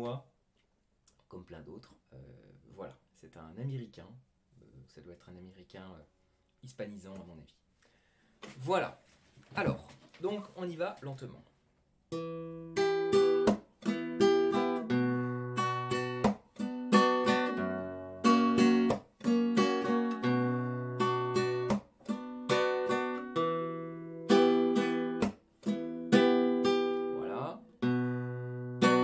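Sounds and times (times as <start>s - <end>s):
guitar strumming chords: 12.1s - 29.0s.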